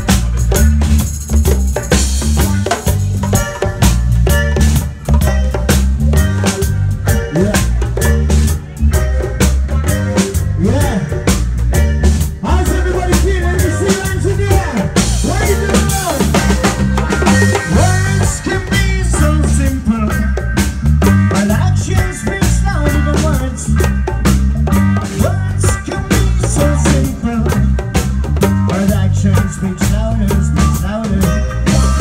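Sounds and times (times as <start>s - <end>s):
drum kit beat: 0.0s - 32.0s
heavy bass line: 0.0s - 32.0s
keyboard: 0.0s - 32.0s
live reggae band: 0.0s - 32.0s
person singing: 7.0s - 20.5s, 21.2s - 24.1s, 25.0s - 28.0s, 28.6s - 32.0s.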